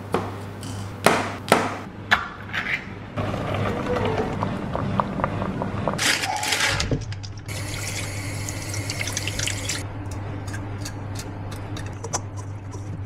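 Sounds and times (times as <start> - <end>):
steady low hum: 7.1 - 13.0
faucet running into steel sink: 7.5 - 9.8
water drips and splashes: 7.5 - 9.8.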